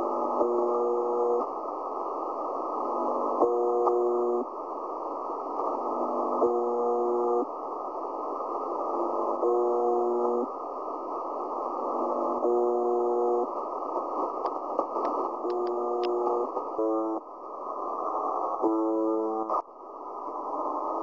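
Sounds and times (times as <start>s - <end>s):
radio static hiss: 0.0s - 21.0s
radio buzz tone: 6.4s - 7.5s, 9.4s - 10.5s, 12.4s - 13.5s, 15.4s - 17.2s, 18.6s - 19.6s.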